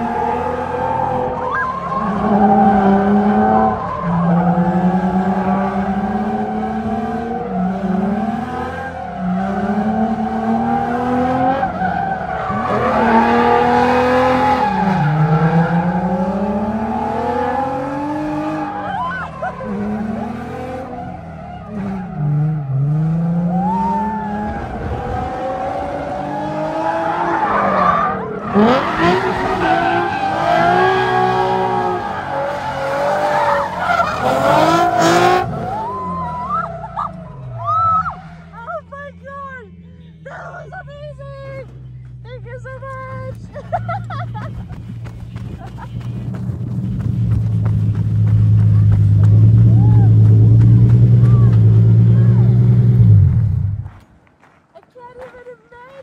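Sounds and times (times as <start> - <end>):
tyres squealing on asphalt: 0.0 - 42.2
car engine revving: 0.0 - 54.0.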